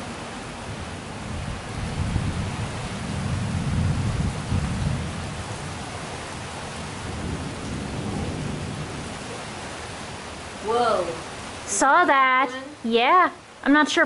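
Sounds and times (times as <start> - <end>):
rain hissing: 0.0 - 14.0
thunder rumbling: 0.6 - 11.5.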